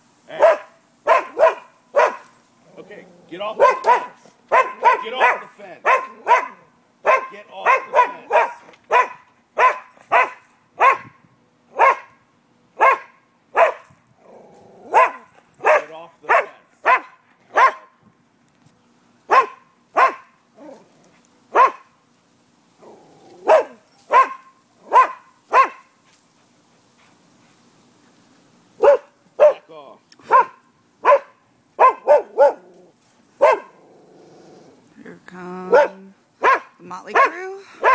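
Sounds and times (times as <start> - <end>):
dog barking: 0.3 - 2.3, 3.5 - 11.1, 11.8 - 12.2, 12.8 - 13.9, 14.9 - 18.0, 19.3 - 20.4, 21.5 - 21.9, 23.4 - 25.9, 28.8 - 32.7, 33.4 - 33.8, 35.7 - 37.9.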